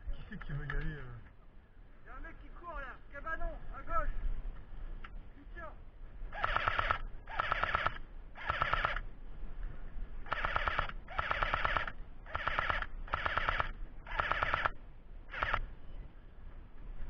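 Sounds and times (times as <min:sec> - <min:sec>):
airsoft rifle full-auto bursts: 0:06.3 - 0:09.0, 0:10.3 - 0:15.7.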